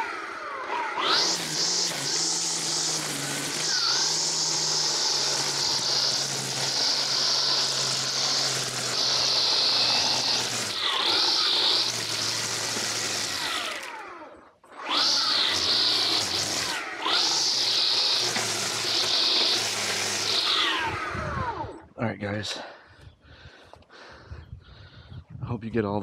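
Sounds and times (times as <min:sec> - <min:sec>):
string trimmer motor whine: 0:00.0 - 0:21.9
cutting line hissing through weeds: 0:01.0 - 0:13.8, 0:15.2 - 0:21.1.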